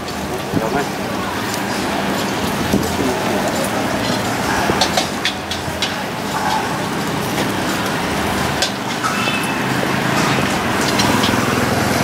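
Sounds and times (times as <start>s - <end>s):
traffic noise: 0.0s - 12.0s.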